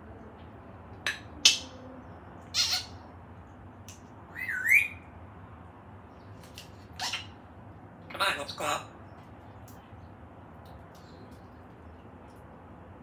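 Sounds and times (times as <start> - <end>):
parrot squawking: 2.5 - 3.0, 4.3 - 5.1, 6.9 - 7.4
parrot whistling: 4.3 - 5.1.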